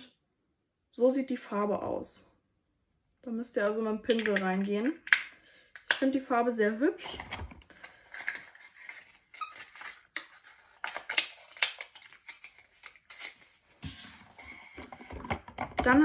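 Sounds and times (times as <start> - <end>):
cosmetic containers handled: 4.1 - 6.3, 7.0 - 16.0.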